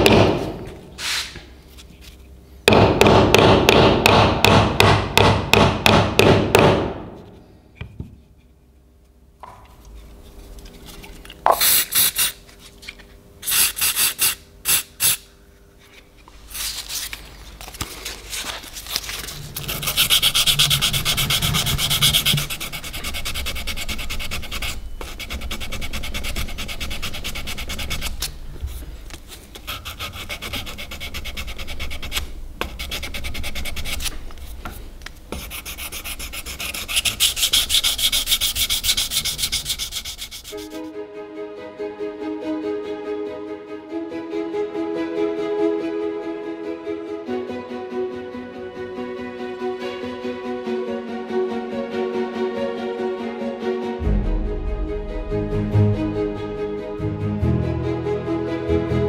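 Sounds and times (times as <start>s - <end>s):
hand sanding with sandpaper: 1.0s - 1.4s, 13.4s - 15.2s, 18.4s - 28.3s, 29.6s - 34.2s, 35.3s - 40.9s.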